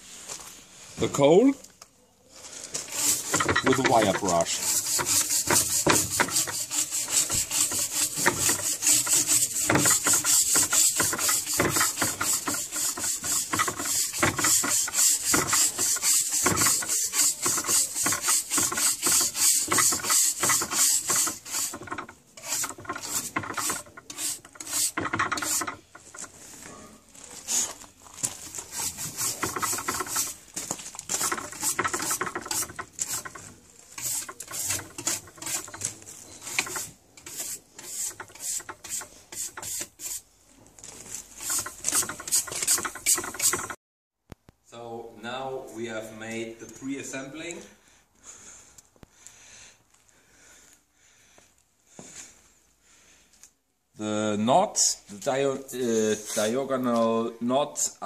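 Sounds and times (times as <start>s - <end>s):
wire brush scrubbing charred wood: 2.7s - 26.6s, 27.3s - 40.3s, 41.0s - 43.8s.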